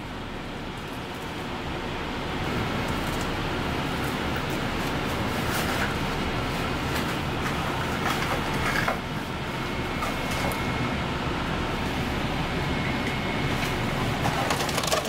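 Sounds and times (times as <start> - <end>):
rumbling kitchen background noise: 0.0 - 15.0
faint high whine: 9.4 - 14.2.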